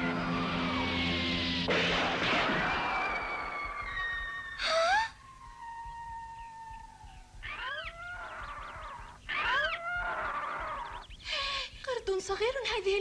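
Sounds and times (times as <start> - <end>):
shriek with rising pitch: 0.0 - 11.1
monkey wailing calls: 2.8 - 11.2.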